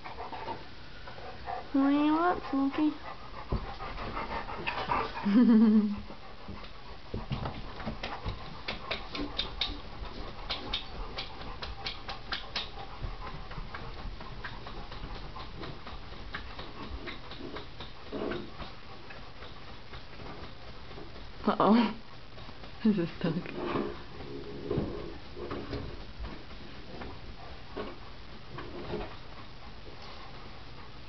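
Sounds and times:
dog slapping clicks: 7.4s - 21.2s.

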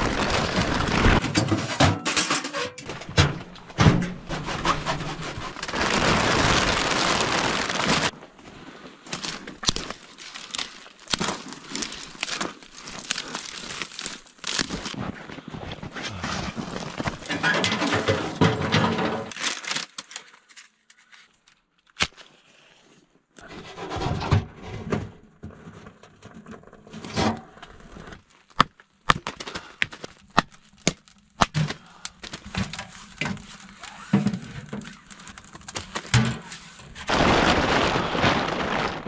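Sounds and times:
twigs rustling and snapping: 5.3s - 8.2s, 9.0s - 15.4s, 19.3s - 22.4s, 28.2s - 36.7s.

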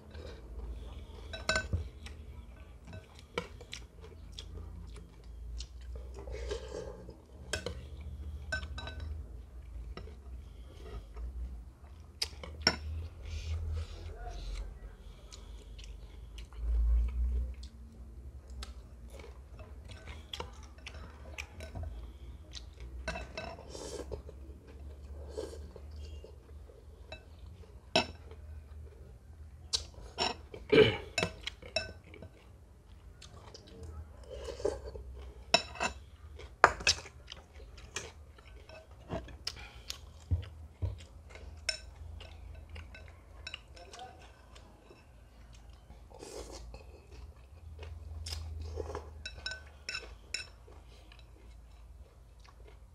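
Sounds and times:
man chewing food: 0.0s - 52.9s
spoon and chopsticks clinking bowls: 1.3s - 1.9s, 8.5s - 9.2s, 49.2s - 50.6s.

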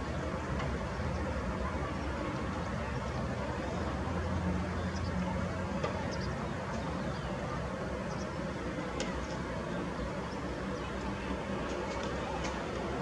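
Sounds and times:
distant city traffic hum: 0.0s - 13.0s.

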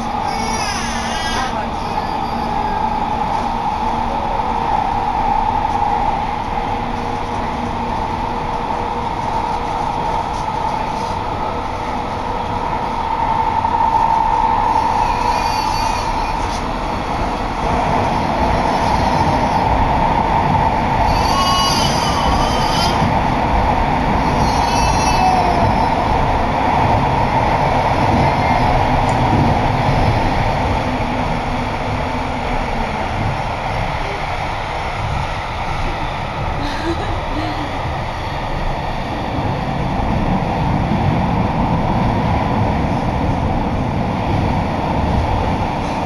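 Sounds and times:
wavering high squeals: 0.0s - 3.9s, 14.0s - 17.0s, 21.0s - 23.2s, 24.2s - 26.2s
train rumble: 0.0s - 46.0s.

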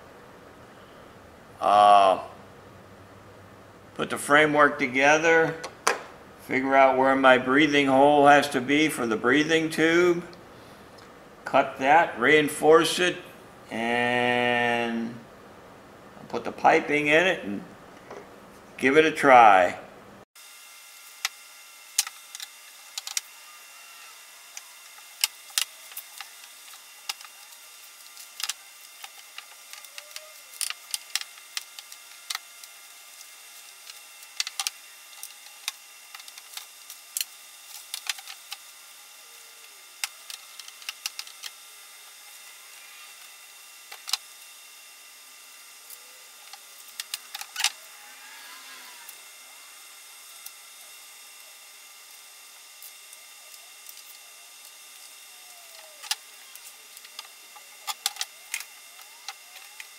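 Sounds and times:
steady hiss: 20.3s - 59.9s
faint squeaks: 47.8s - 49.2s.

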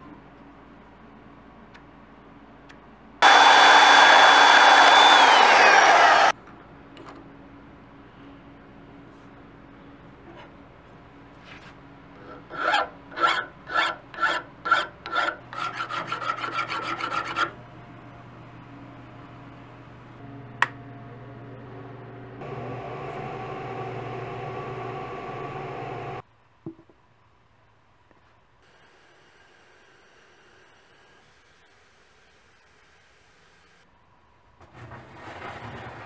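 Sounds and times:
file strokes on steel: 12.2s - 17.6s.

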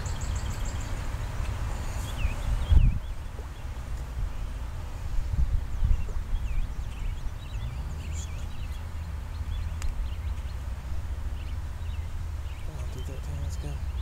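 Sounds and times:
small birds chirping: 0.0s - 14.0s
steady low rumble: 0.0s - 14.0s.

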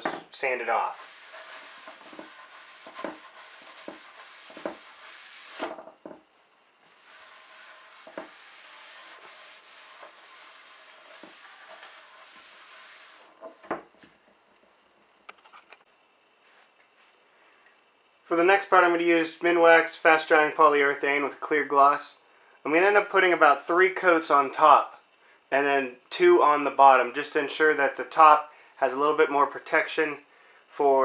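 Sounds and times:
towel wiping a wooden surface: 0.8s - 5.8s, 6.9s - 13.6s.

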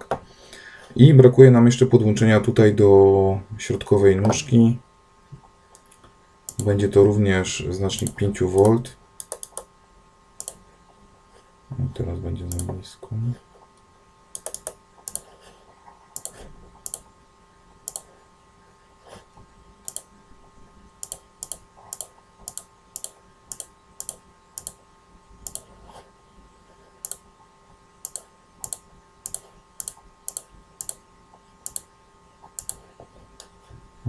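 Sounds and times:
computer mouse clicks: 5.7s - 6.7s, 8.0s - 9.7s, 10.4s - 10.6s, 12.5s - 12.7s, 14.3s - 15.3s, 16.2s - 17.1s, 17.9s - 18.1s, 19.8s - 20.1s, 21.0s - 24.8s, 25.4s - 25.7s, 27.0s - 27.2s, 28.0s - 31.0s, 31.6s - 31.9s, 32.5s - 32.8s.

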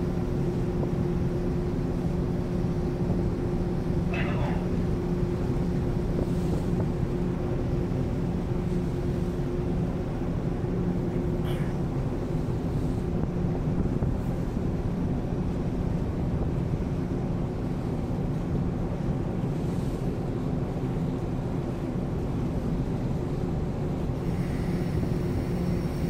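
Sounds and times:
ship engines humming: 0.0s - 19.7s, 23.9s - 26.0s
wind noise on microphone: 4.8s - 20.8s.

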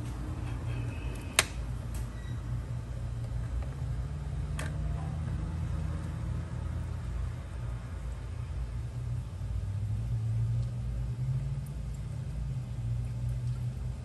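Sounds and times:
oil pouring: 5.6s - 14.0s.

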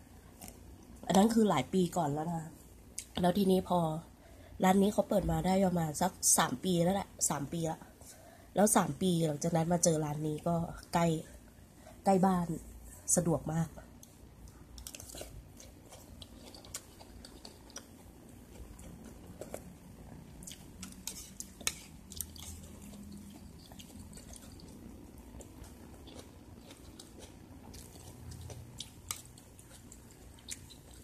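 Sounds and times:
faint chewing: 13.9s - 31.0s.

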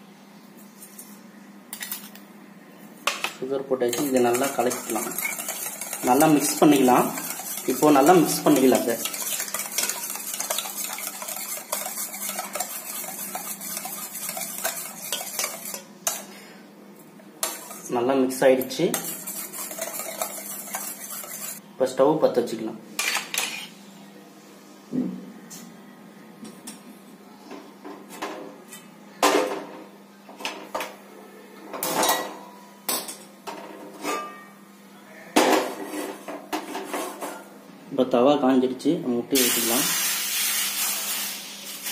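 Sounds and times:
metal spoon beating in steel bowl: 3.9s - 16.2s, 18.9s - 21.6s.

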